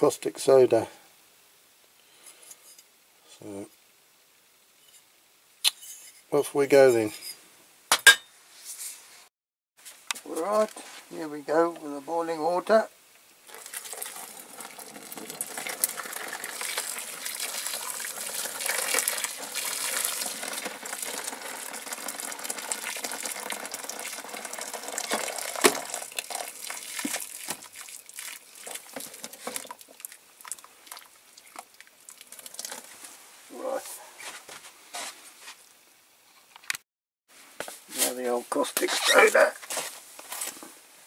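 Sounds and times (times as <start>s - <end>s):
boiling water pouring: 13.4s - 33.1s.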